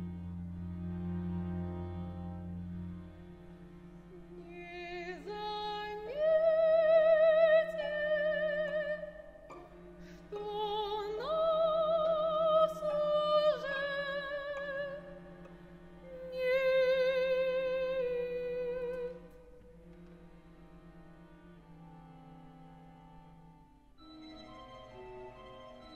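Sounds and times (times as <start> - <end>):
soprano singing with vibrato: 4.2 - 15.2, 16.1 - 19.4.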